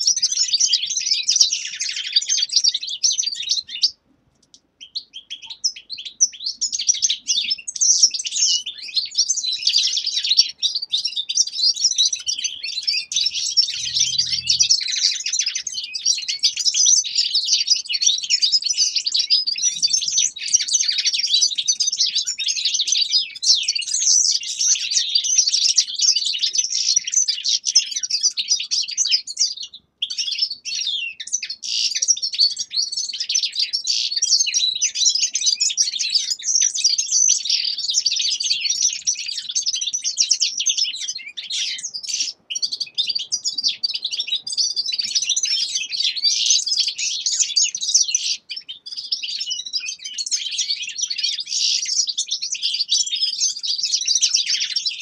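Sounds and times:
finches twittering: 11.0s - 16.6s.

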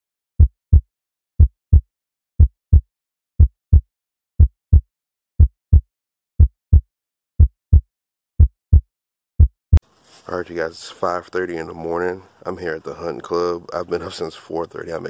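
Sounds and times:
heartbeat thumps: 0.4s - 1.8s, 2.4s - 2.8s, 3.4s - 3.8s, 4.4s - 4.8s, 5.4s - 5.8s, 6.4s - 6.8s, 7.4s - 8.8s, 9.4s - 9.8s.

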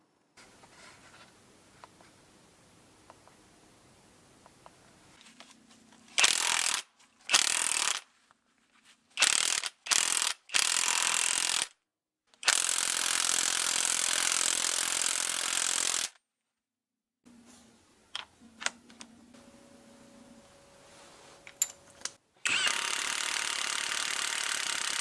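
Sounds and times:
cordless impact wrench running: 6.2s - 8.0s, 9.2s - 11.7s, 12.4s - 16.2s, 22.4s - 25.0s.

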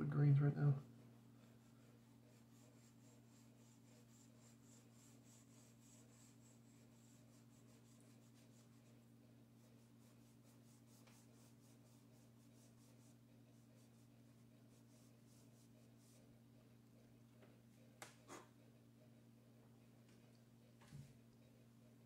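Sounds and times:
steady low hum: 0.0s - 22.0s
chalk pastel strokes on paper: 1.4s - 16.4s
fingertip rubbing on paper: 1.5s - 16.3s.

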